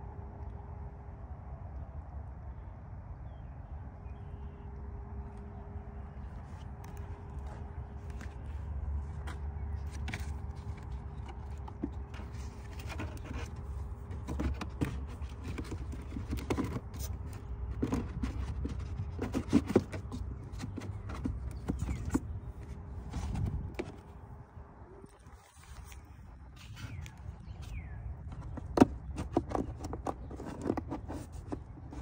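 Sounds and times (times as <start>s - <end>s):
plastic clicks knocks and scrapes: 9.2s - 24.1s, 26.6s - 32.0s.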